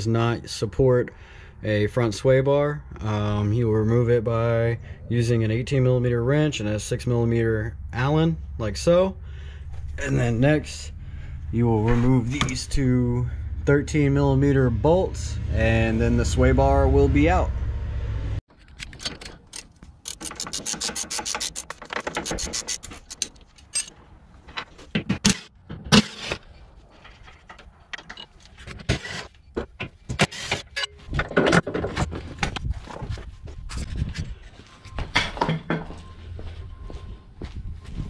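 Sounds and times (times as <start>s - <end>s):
ratchet wrench clicking: 19.0s - 23.9s
metal clanks and knocks: 27.0s - 32.6s, 35.0s - 36.0s.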